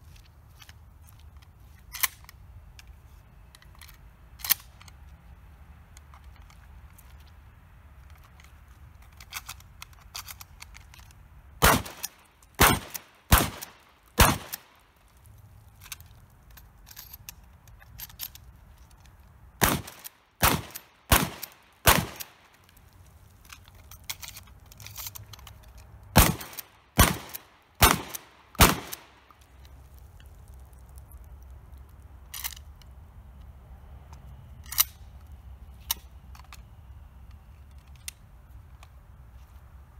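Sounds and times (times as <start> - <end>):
shells being loaded clicks: 0.6 - 5.1, 8.0 - 15.1, 15.8 - 33.5, 34.1 - 38.2
shotgun shots: 11.6 - 14.6, 19.6 - 22.3, 26.2 - 29.1.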